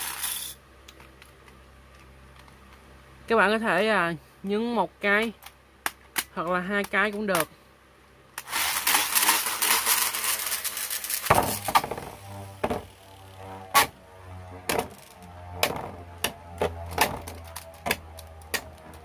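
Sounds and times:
pull-cord launcher whirring: 8.4s - 13.9s
spinning top humming: 8.5s - 19.0s.

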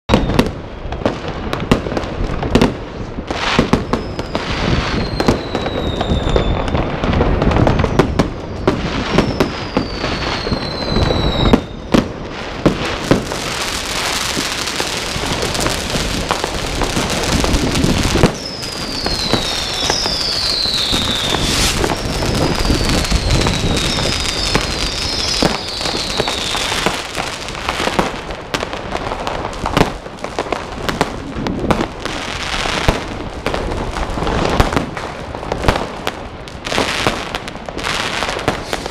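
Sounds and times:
whistling rockets: 0.1s - 0.9s, 3.4s - 28.2s, 38.0s - 38.9s
firecracker bangs: 0.1s - 36.0s, 36.6s - 38.9s
fireworks crackle: 0.1s - 38.9s.

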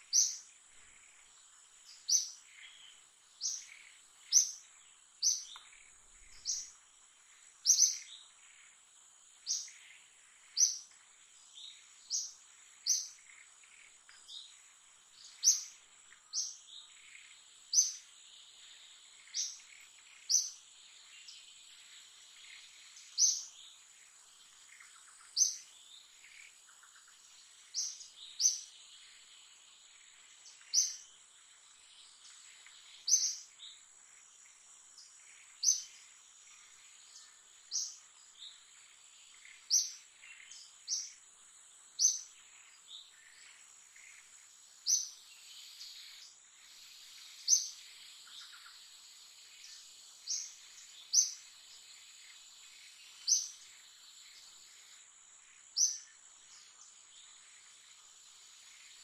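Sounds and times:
insect drone: 0.0s - 59.0s.

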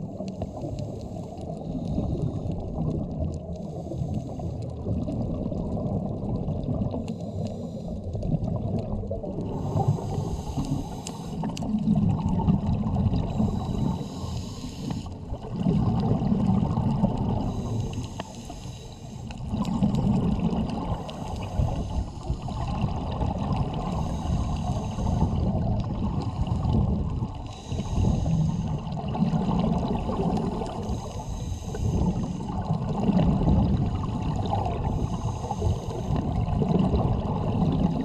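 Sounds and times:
exhaled bubbles rumbling underwater: 0.0s - 38.0s
regulator hissing inhale: 0.1s - 2.7s, 3.4s - 4.8s, 7.0s - 8.2s, 9.5s - 11.6s, 13.2s - 15.2s, 17.4s - 19.7s, 21.0s - 22.9s, 23.7s - 29.0s, 30.0s - 32.7s, 33.8s - 36.5s.

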